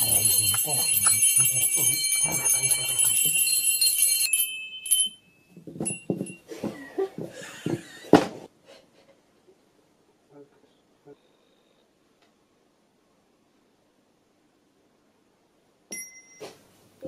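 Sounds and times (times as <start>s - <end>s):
handbells ringing: 0.0s - 6.5s
bells clunking on a table: 0.0s - 6.8s.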